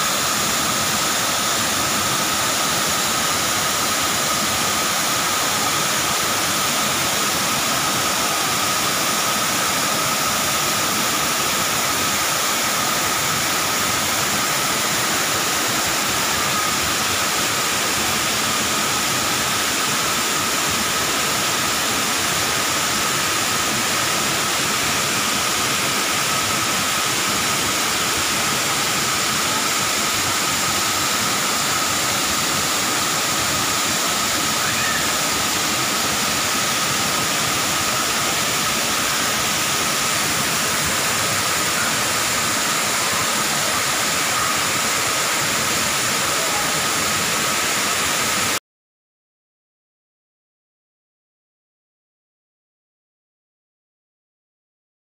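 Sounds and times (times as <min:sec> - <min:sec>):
waterfall rushing into pool: 0:00.0 - 0:48.6.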